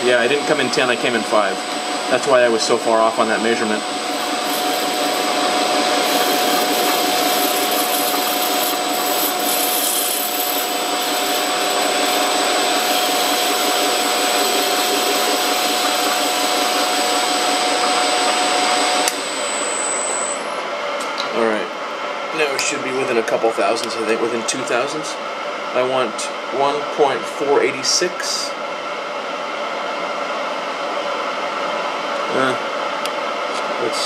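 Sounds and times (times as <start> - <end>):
metal lathe whirring: 0.0 - 20.8
thin cutting whine: 0.2 - 20.7.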